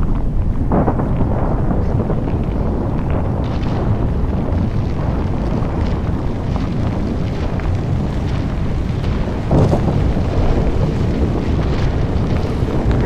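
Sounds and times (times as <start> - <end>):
debris falling: 0.0 - 13.0
low rumble of building collapsing: 0.0 - 13.0.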